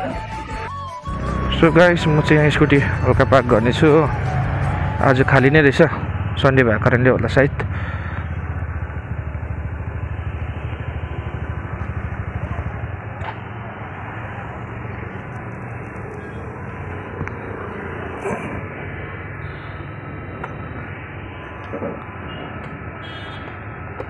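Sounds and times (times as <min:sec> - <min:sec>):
street noise: 0:00.0 - 0:24.0
scooter engine running: 0:01.1 - 0:19.7.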